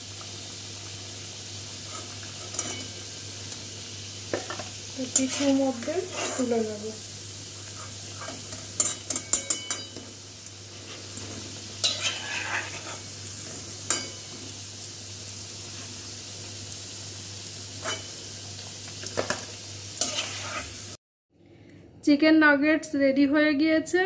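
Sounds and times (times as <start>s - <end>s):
food sizzling in hot oil: 0.0s - 21.0s
metal spatula clinking on pan: 2.5s - 3.0s, 8.2s - 10.1s, 11.8s - 12.8s, 13.9s - 14.2s, 17.8s - 18.2s.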